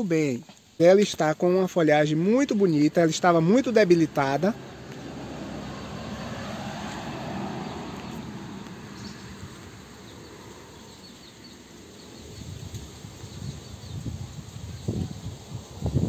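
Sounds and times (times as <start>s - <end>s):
steady hiss: 0.0s - 4.5s
insects chirping: 0.0s - 16.0s.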